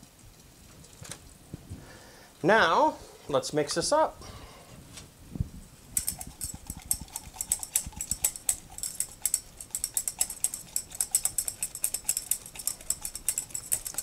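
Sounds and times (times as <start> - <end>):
metal utensil clinking in cup: 6.0 - 14.0.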